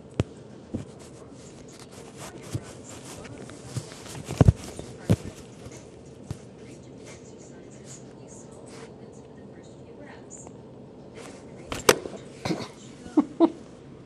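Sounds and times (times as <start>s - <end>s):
cats scuffling on a blanket: 0.0s - 7.2s
soft thumps: 0.1s - 6.5s.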